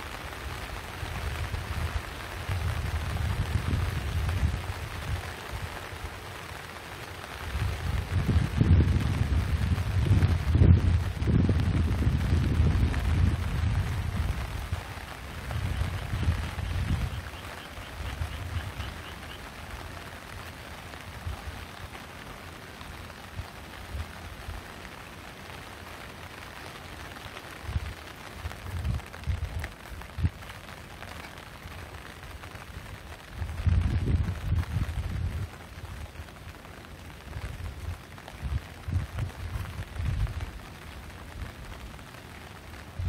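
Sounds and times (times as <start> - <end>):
rain falling: 0.0 - 43.0
low rumbles on microphone: 7.6 - 14.8, 33.4 - 35.6.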